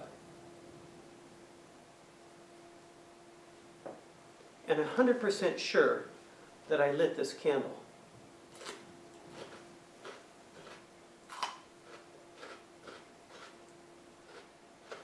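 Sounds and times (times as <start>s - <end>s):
faint steady hum: 0.0s - 15.0s
person chewing crunchy food: 8.5s - 13.6s, 14.2s - 15.0s.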